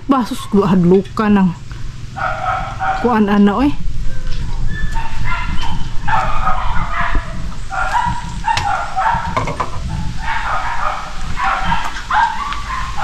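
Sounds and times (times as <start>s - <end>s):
dog barking: 2.2s - 3.4s, 4.1s - 13.0s.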